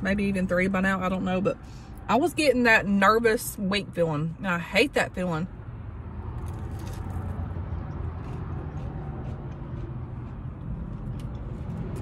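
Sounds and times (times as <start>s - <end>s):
person chewing food: 6.4s - 12.0s.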